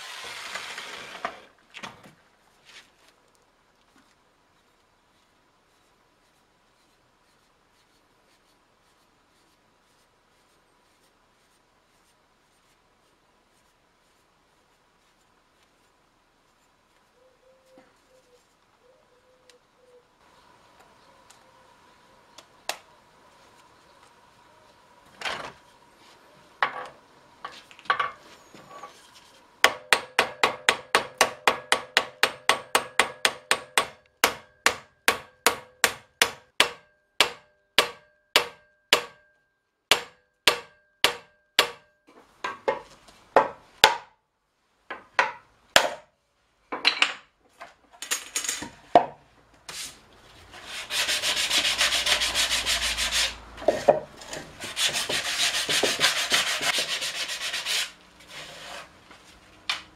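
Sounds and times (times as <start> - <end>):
loud rubbing noise: 0.0 - 1.5, 49.7 - 53.4, 54.2 - 59.0
hammer striking metal: 29.7 - 39.3, 39.9 - 41.9.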